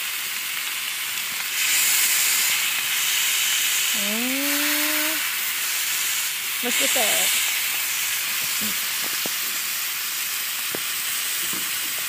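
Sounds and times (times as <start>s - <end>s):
steaks sizzling on griddle: 0.0s - 12.0s.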